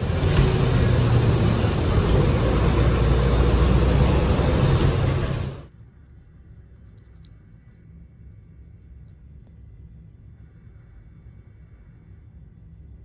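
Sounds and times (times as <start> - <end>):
bus engine and road rumble: 0.0 - 5.7.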